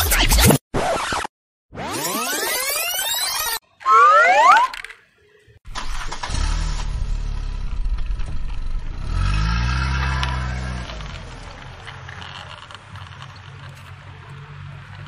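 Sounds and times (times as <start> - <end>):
car engine starting and revving: 5.7 - 15.0.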